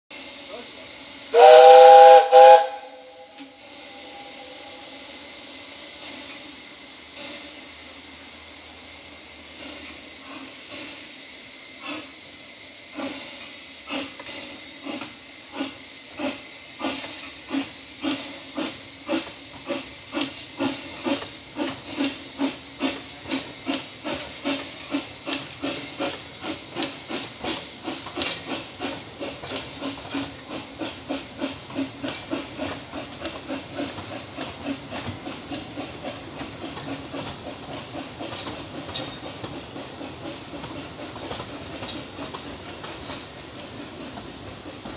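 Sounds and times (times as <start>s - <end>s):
steam hissing: 0.1s - 44.9s
steam locomotive exhaust chuffs: 0.1s - 44.9s
steam locomotive whistle: 1.2s - 5.2s.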